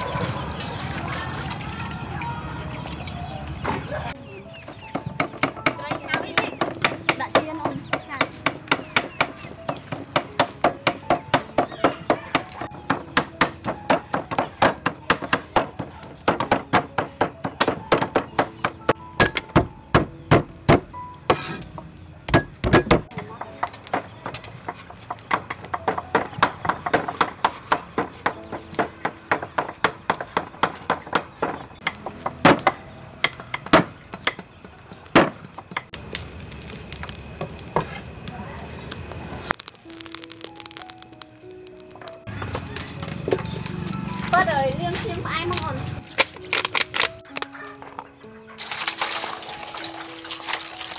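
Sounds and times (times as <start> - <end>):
cleaver chopping meat on wooden board: 4.8 - 21.4.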